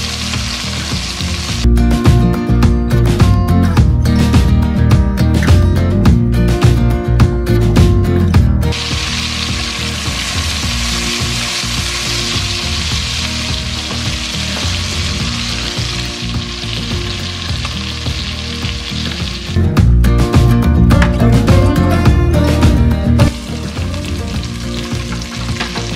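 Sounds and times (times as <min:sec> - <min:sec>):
chicken sizzling in butter: 0:00.0 - 0:01.7, 0:08.7 - 0:19.6, 0:23.3 - 0:25.9
music: 0:00.0 - 0:25.9.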